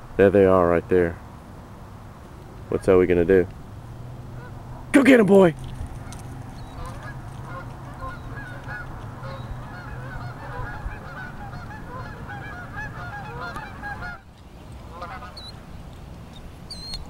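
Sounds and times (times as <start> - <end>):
geese honking: 4.3 - 17.0.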